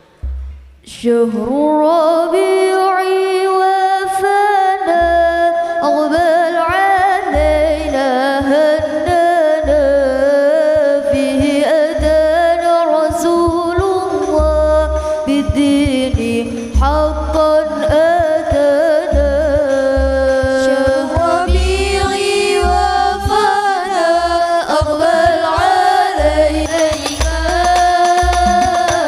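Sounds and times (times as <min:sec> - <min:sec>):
deep bass beat: 0:00.0 - 0:00.9, 0:07.3 - 0:23.4, 0:24.1 - 0:29.0
girls singing through speakers: 0:00.9 - 0:29.0.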